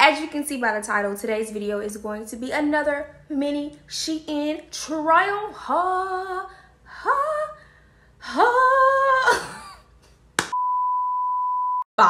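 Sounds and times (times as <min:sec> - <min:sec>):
high steady beep: 0:10.5 - 0:11.9.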